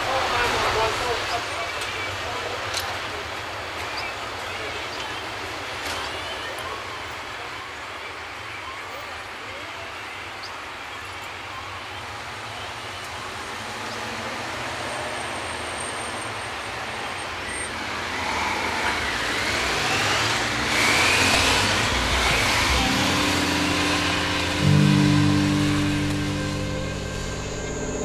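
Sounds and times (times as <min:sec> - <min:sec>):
street traffic noise: 0:00.0 - 0:28.0
vehicle passing: 0:18.1 - 0:28.0.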